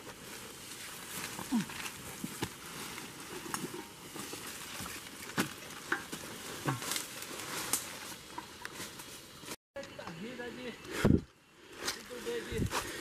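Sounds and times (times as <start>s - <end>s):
footsteps crunching through dry leaves: 0.0s - 9.6s
twigs cracking: 0.0s - 10.2s.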